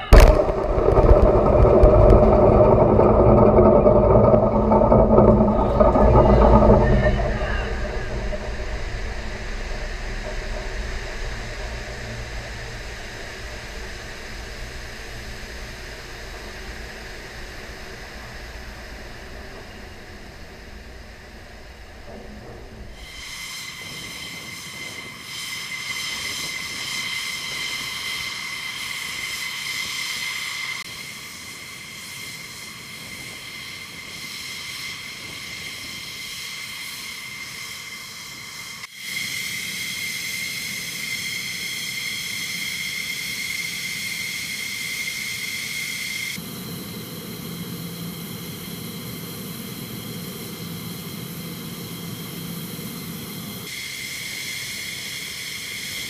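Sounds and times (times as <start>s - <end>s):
low rumble: 0.0s - 23.5s
jet turbine whine: 0.0s - 56.0s.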